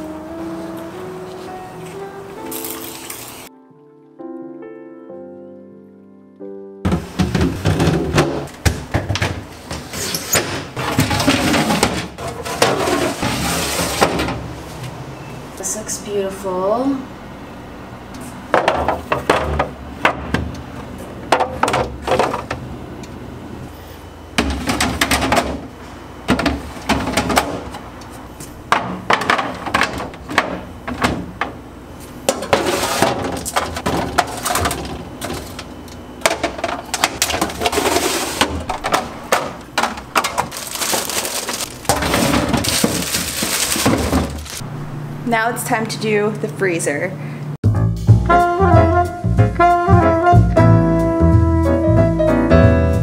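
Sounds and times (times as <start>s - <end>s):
plastic containers clattering on glass shelves: 6.9s - 14.5s, 18.5s - 20.5s, 21.3s - 22.6s, 24.4s - 25.7s, 26.3s - 27.8s, 28.7s - 31.6s, 32.2s - 44.6s.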